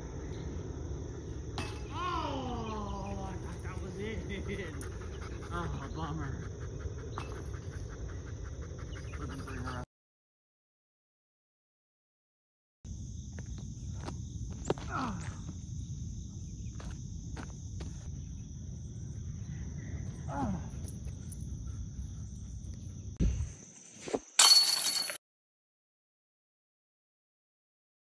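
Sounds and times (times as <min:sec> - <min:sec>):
insect drone: 0:00.0 - 0:09.8, 0:12.9 - 0:24.6.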